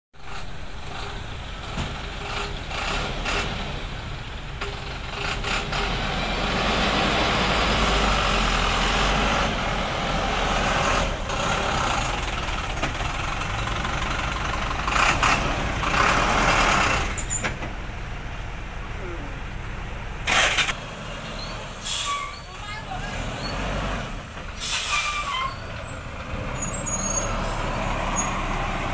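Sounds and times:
diesel engines running: 0:00.2 - 0:28.9
machinery clatter: 0:20.2 - 0:20.8.

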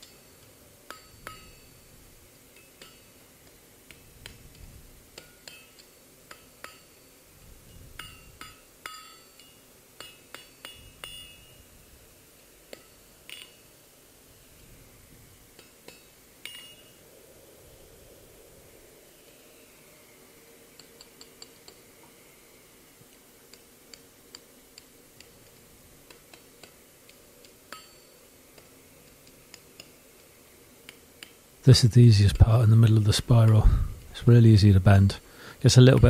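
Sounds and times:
hammer tapping steel on anvil: 0:00.0 - 0:07.2, 0:08.0 - 0:11.7, 0:12.6 - 0:13.7, 0:15.5 - 0:17.0, 0:20.7 - 0:22.2, 0:23.1 - 0:31.4.

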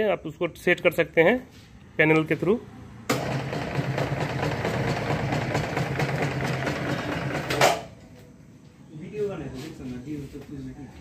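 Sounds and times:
machine stopping clunk: 0:03.1 - 0:08.0.

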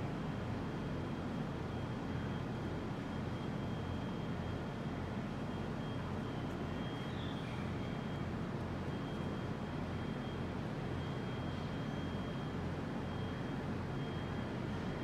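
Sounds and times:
low outdoor background rumble: 0:00.0 - 0:15.0.

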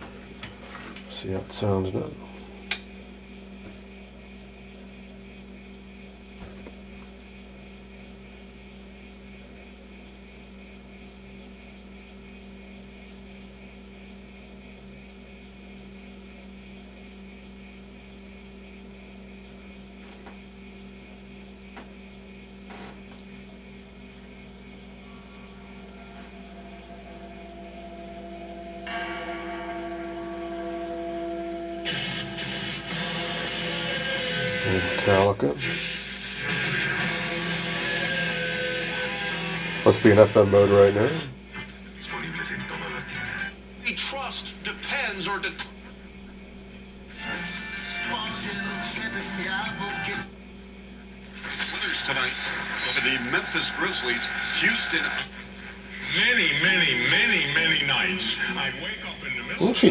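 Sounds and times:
tube radio humming: 0:00.0 - 0:59.9
radio broadcast signal: 0:24.2 - 0:45.7, 0:47.1 - 0:50.3, 0:51.2 - 0:59.9.

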